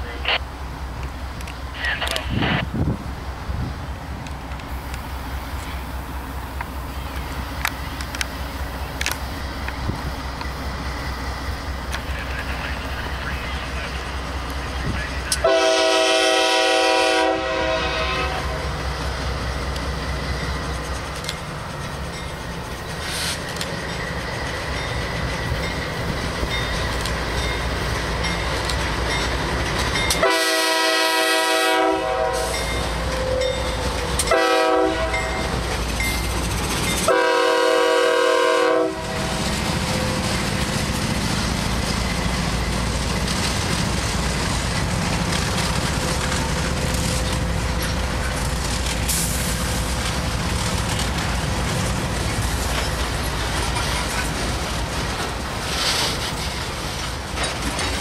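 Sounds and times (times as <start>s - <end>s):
diesel locomotives rumbling: 0.0s - 58.0s
train horn: 15.3s - 18.7s, 30.2s - 33.5s, 34.2s - 35.5s, 37.1s - 39.4s
wheels clattering on rail: 18.4s - 38.0s, 38.8s - 58.0s.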